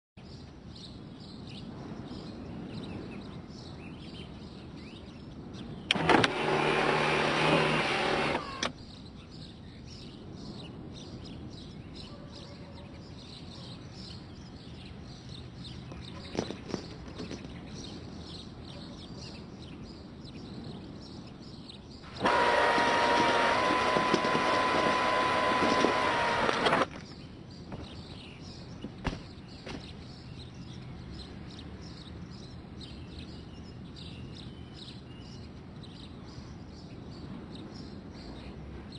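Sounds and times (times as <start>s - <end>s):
outdoor background noise: 0.2s - 38.9s
sunroof motor whirring: 5.9s - 8.8s, 22.1s - 26.9s.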